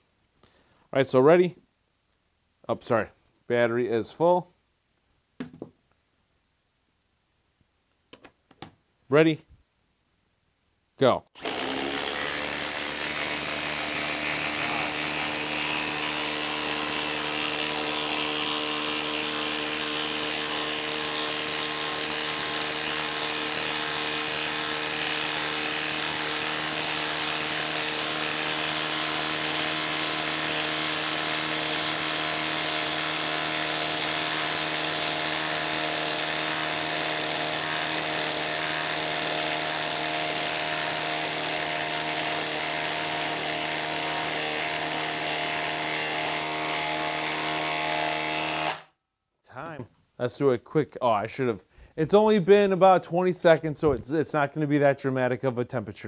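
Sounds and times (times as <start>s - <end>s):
impact driver hammering: 11.4s - 48.9s.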